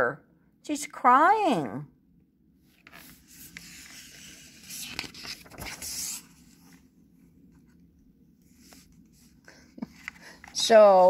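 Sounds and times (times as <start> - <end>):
book page turning: 2.7 - 6.9, 8.5 - 11.0.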